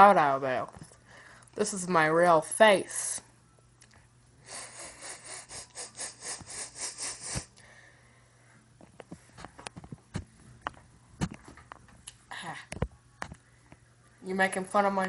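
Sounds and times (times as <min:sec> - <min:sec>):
boy's breathy laughter: 0:04.5 - 0:07.5.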